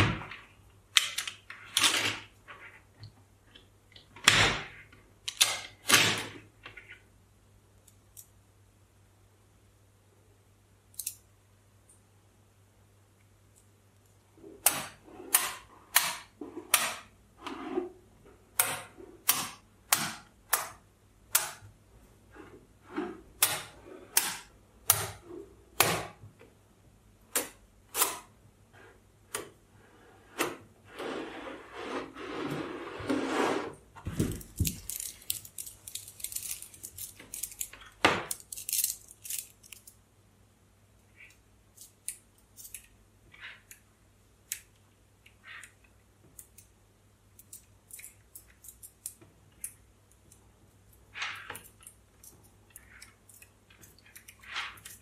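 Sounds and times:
magnetic balls rattling: 34.1s - 39.9s.

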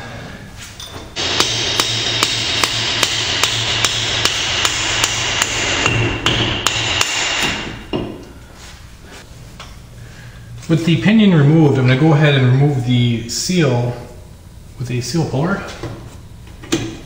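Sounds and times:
hammer striking metal: 1.2s - 8.2s.

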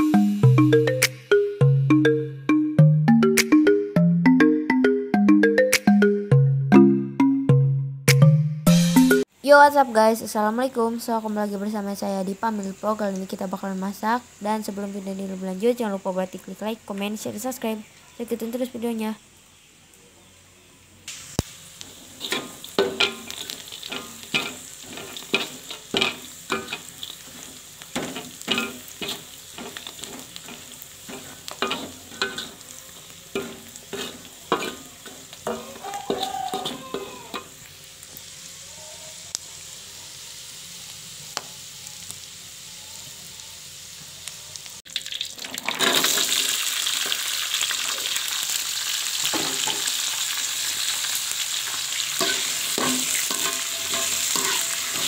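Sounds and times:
frying hiss: 8.8s - 55.0s
loud sizzle in hot oil: 9.2s - 55.0s
spatula scraping a wok: 21.8s - 37.6s, 51.9s - 55.0s.

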